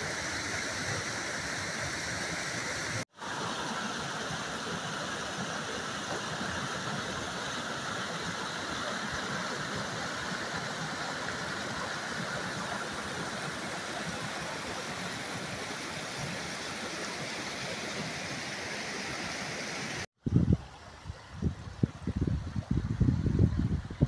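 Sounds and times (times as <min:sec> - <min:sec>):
stream rushing over rock ledges: 0:00.0 - 0:20.1.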